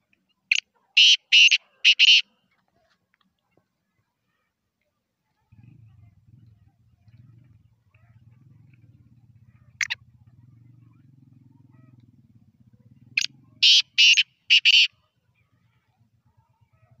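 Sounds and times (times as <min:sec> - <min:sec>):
francolin harsh grating call: 0:01.0 - 0:02.2, 0:13.6 - 0:14.9.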